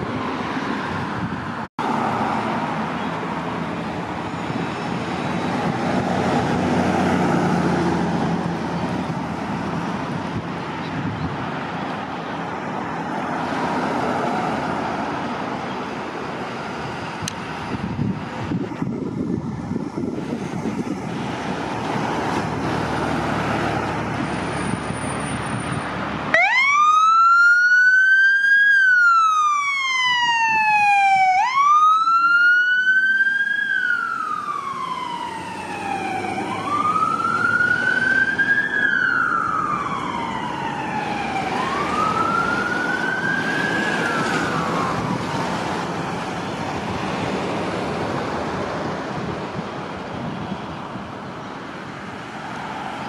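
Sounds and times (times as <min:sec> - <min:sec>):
vehicle engine: 0:00.0 - 0:26.8
road traffic: 0:00.0 - 0:53.0
fire truck siren wailing: 0:12.1 - 0:47.4.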